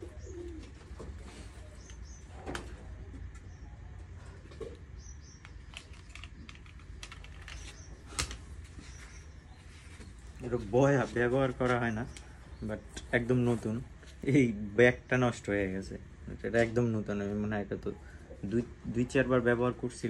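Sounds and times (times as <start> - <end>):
low steady hum: 0.0 - 20.0
cables and plugs clicking: 5.2 - 8.5.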